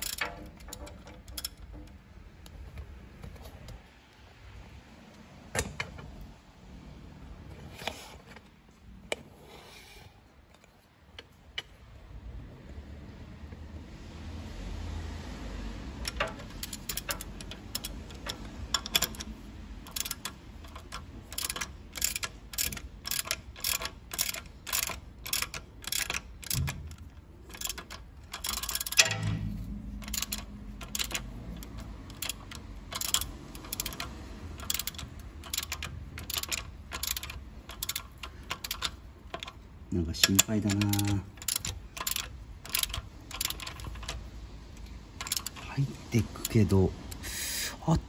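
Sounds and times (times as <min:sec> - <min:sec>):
ratchet wrench clicking: 0:00.0 - 0:02.0, 0:16.0 - 0:47.2.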